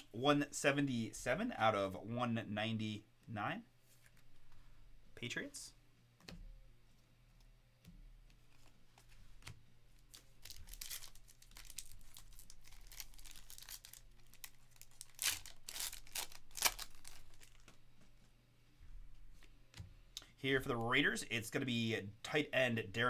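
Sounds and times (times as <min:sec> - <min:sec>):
foil wrapper tearing and crinkling: 0:10.1 - 0:17.7.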